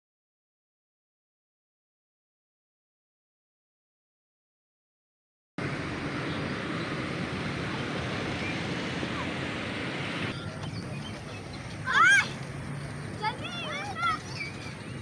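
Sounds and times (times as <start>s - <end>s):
road traffic rushing: 5.6s - 15.0s.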